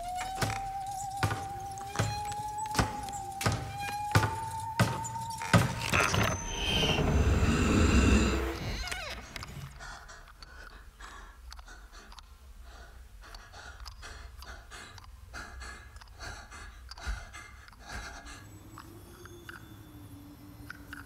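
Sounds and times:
quick heavy breathing: 0:07.6 - 0:19.0.

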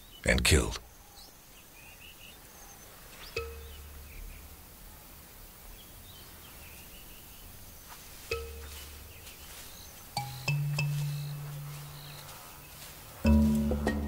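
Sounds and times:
bird chirps: 0:00.0 - 0:14.0
soft background music notes: 0:03.2 - 0:04.4, 0:08.1 - 0:14.0.

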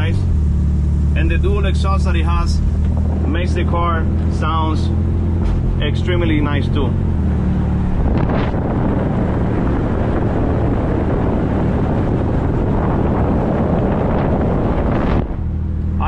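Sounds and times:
car exhaust rumbling inside car: 0:00.0 - 0:16.0.

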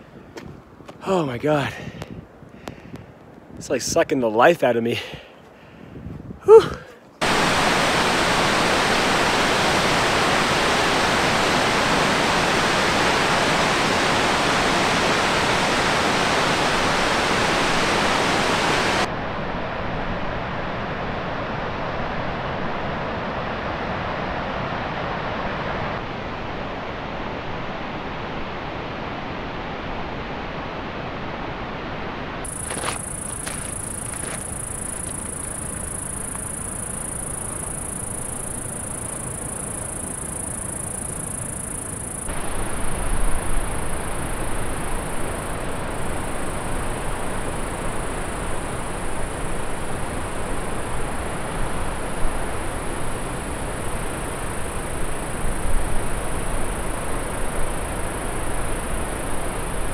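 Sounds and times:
fast-flowing water rushing: 0:07.2 - 0:19.1, 0:42.2 - 0:57.4
high-pitched insect buzz: 0:32.5 - 0:59.9.

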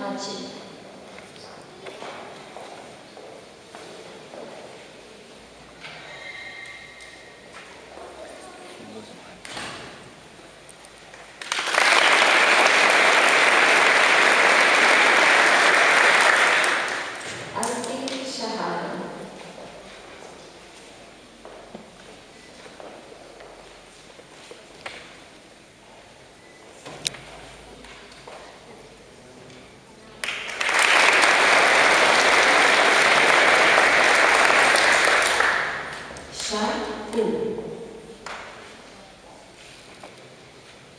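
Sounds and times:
audience applauding: 0:11.1 - 0:17.4, 0:30.2 - 0:36.3.

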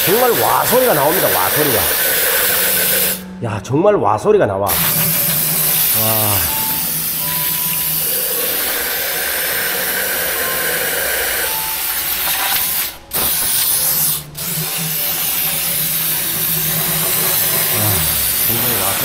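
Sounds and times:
spray jet hissing: 0:00.0 - 0:03.3, 0:04.7 - 0:19.0.

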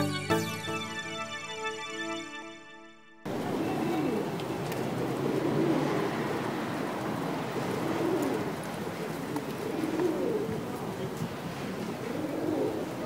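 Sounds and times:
pigeons cooing: 0:03.3 - 0:13.0.

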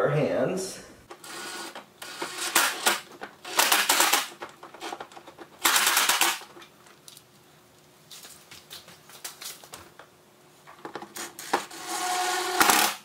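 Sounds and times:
cordless drill driving bolts: 0:01.1 - 0:05.0, 0:05.6 - 0:06.5, 0:11.2 - 0:13.0.

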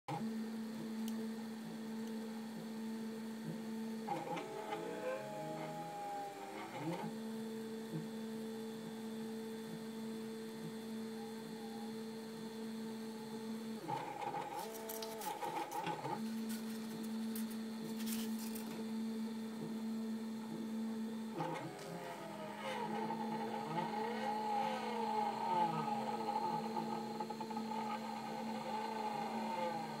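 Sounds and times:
stepper motors whining: 0:13.3 - 0:18.8, 0:21.3 - 0:30.0.

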